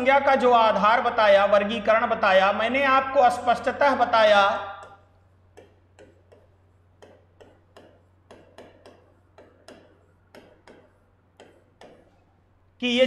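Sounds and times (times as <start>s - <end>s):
low electrical hum: 0.0s - 13.0s
stylus tapping on glass: 4.8s - 12.2s.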